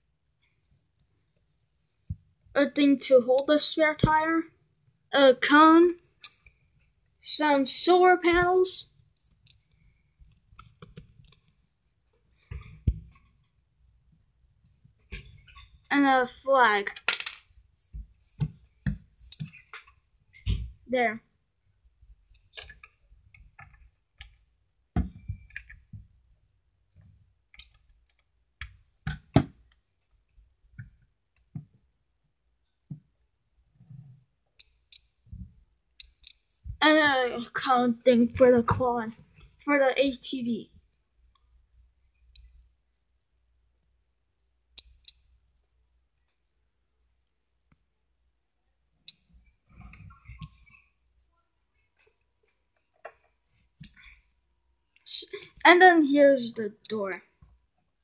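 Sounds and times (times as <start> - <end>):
plastic bricks clicking: 36.0 - 36.4.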